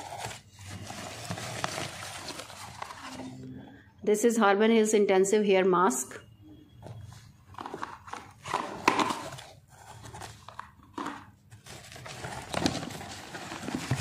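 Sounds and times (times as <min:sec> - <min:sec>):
plastic packaging rustling: 0:00.0 - 0:03.3, 0:07.5 - 0:14.0.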